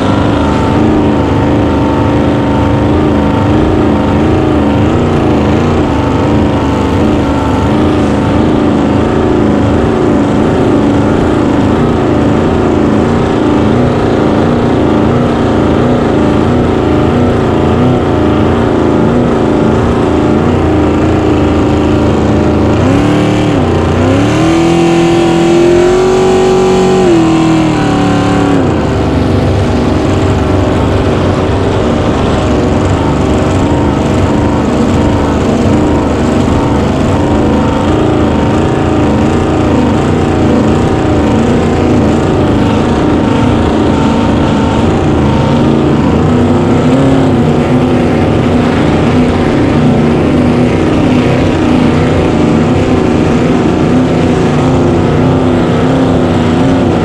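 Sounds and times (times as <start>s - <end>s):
boat engine running at high revs: 0.0s - 57.0s.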